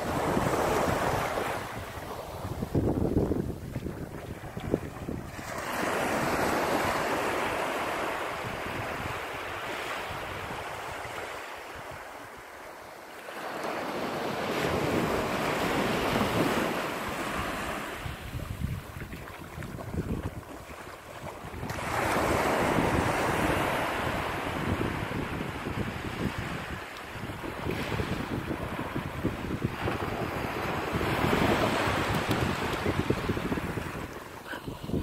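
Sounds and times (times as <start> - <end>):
wind rumble on microphone: 0.0 - 12.4, 14.0 - 35.0
small waves on sandy shore: 0.0 - 35.0.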